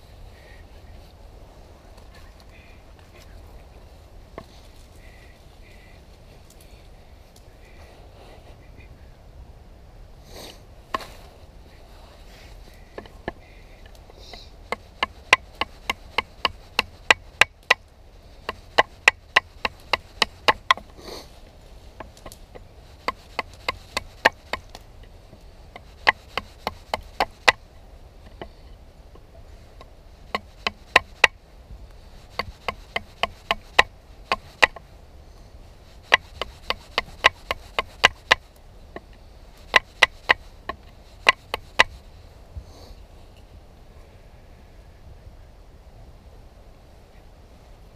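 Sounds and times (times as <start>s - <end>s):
knife chopping into wood: 32.3s - 34.8s.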